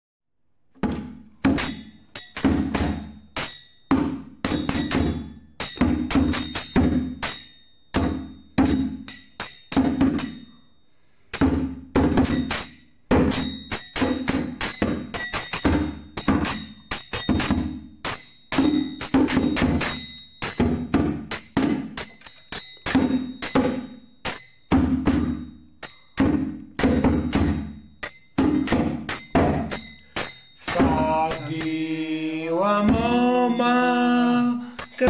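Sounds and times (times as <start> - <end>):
heavy drum strikes: 0.8 - 3.2, 3.9 - 7.4, 11.4 - 22.1, 26.2 - 27.8, 28.4 - 31.7, 32.8 - 33.2
high bell-like tones: 1.6 - 11.5, 12.2 - 35.0.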